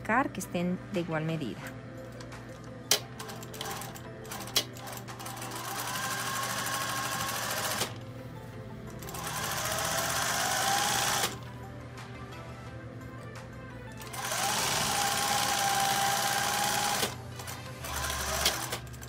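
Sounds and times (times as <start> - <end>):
sewing machine sewing: 3.2 - 8.0, 9.0 - 11.4, 14.0 - 19.0.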